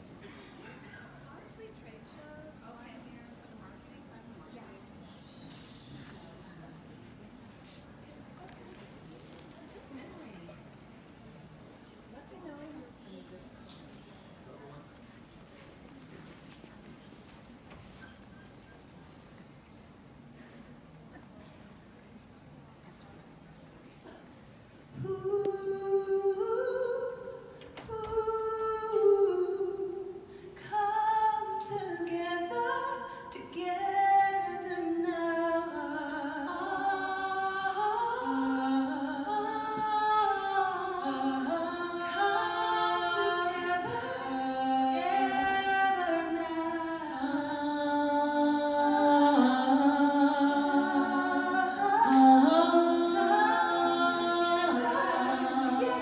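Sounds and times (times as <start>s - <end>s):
voices singing in harmony: 36.3s - 56.0s.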